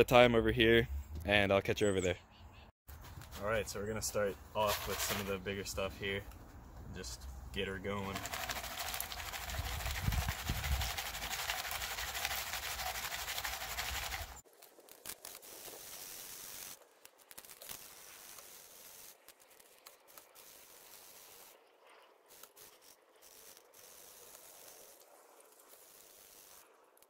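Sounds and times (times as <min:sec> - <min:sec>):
gravel rattling in a pan: 0:07.9 - 0:14.8.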